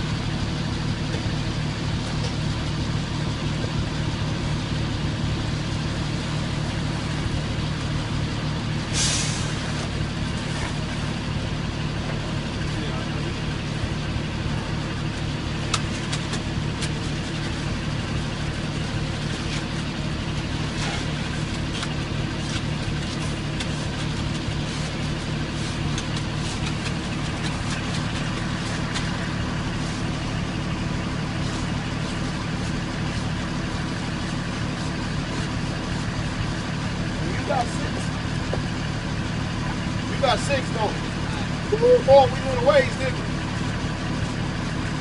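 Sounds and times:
diesel engine idling: 0.0 - 45.0
hand tools scraping wet concrete: 15.7 - 30.6.

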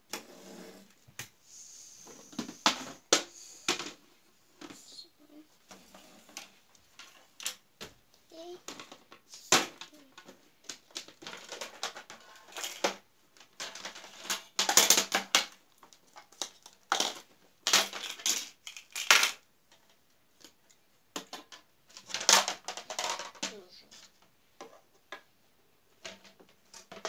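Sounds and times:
plastic toy pieces clattering: 8.6 - 20.6, 21.2 - 24.2.

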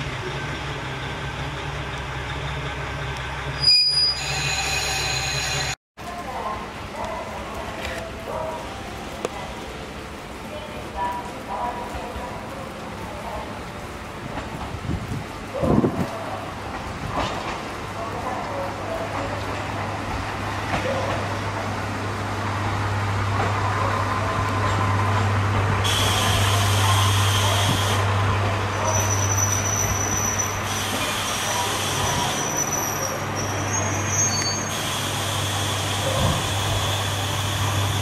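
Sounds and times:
train low hum: 0.0 - 38.0
train hiss: 25.8 - 28.2, 28.8 - 38.0.

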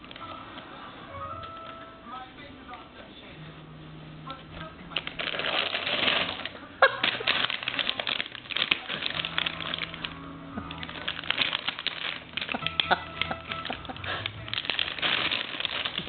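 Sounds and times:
cardboard box crackling and rustling: 5.0 - 10.1, 10.8 - 12.9, 13.9 - 16.0.

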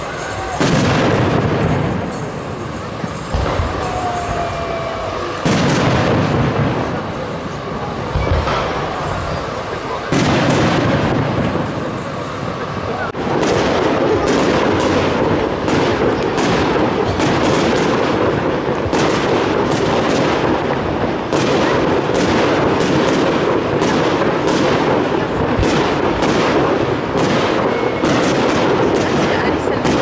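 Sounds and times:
fireworks bangs: 0.0 - 30.0.

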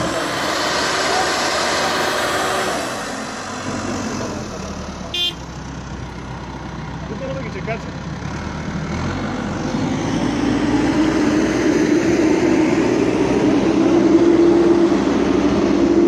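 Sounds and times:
rushing noise: 0.0 - 4.6
backhoe engine hum: 0.0 - 16.0.

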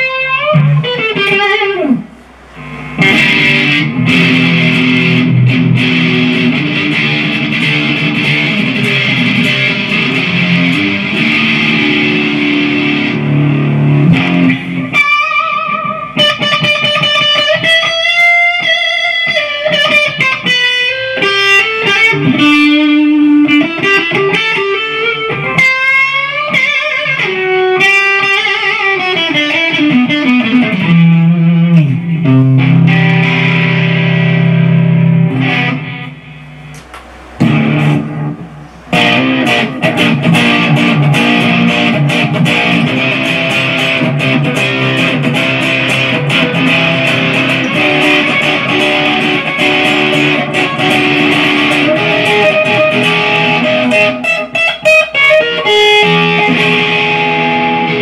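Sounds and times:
electric guitar playing: 0.0 - 58.0.

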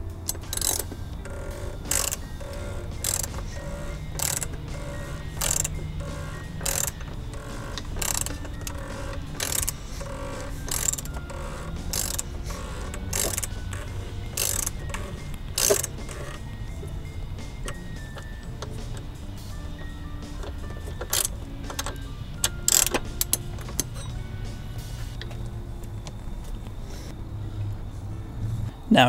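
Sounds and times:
ratchet wrench clicking: 0.0 - 19.1, 20.2 - 24.1.

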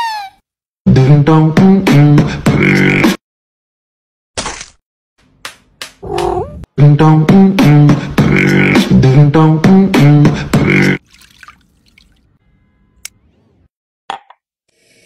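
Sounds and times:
voice singing over a beat: 6.0 - 11.0.

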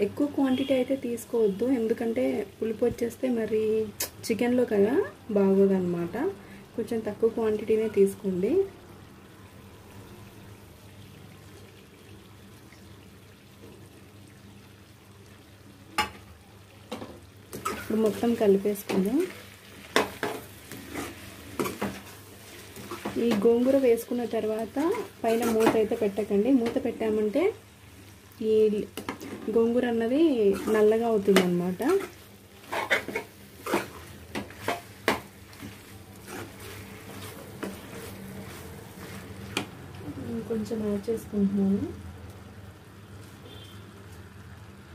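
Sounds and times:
curry cooking on gas stove: 0.0 - 44.9
spatula scraping pan: 17.5 - 23.9, 24.8 - 26.8, 30.4 - 39.4.

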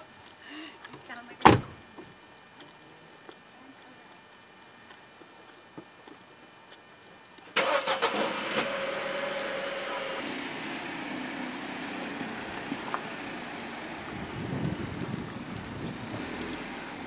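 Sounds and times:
car engine idling: 7.6 - 17.0
car engine starting: 7.6 - 17.0.

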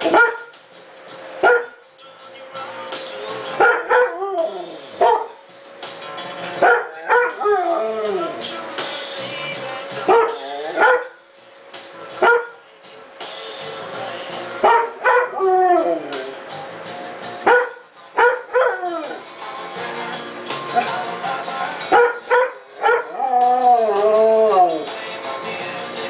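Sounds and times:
dog howling and yipping: 3.6 - 5.3, 6.6 - 8.4, 14.6 - 16.4, 17.5 - 19.4, 22.0 - 24.9
music from loudspeaker: 8.2 - 10.9, 19.2 - 26.0.

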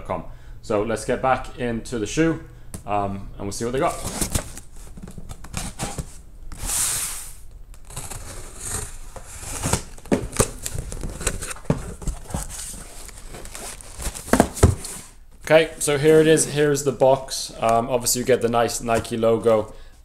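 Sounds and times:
box cutter slitting packing tape: 6.6 - 14.9.

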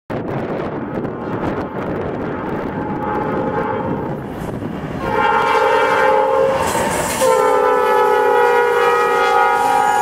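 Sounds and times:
approaching train noise: 0.1 - 10.0
locomotive air horn blasts: 2.3 - 4.1, 5.0 - 10.0.

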